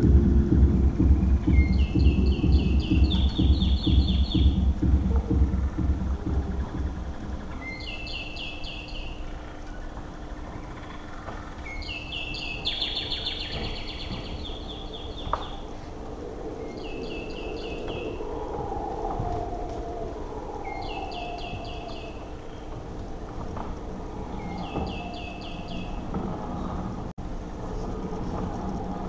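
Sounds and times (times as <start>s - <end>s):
birdlike chirping phrase: 0.0s - 15.9s, 16.6s - 18.5s, 20.6s - 22.8s, 24.2s - 26.8s
low steady hum: 0.0s - 29.0s
wavering drone: 0.0s - 29.0s.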